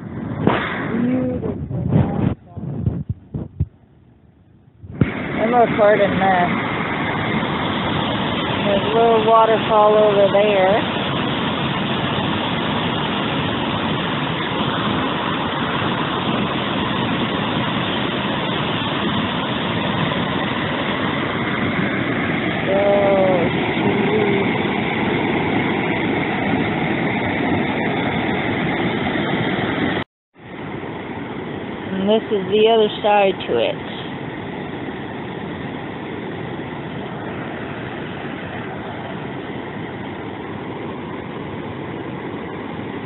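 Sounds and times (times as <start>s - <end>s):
short pitched sound: 0.0s - 9.1s
waterfall rushing: 5.0s - 30.0s.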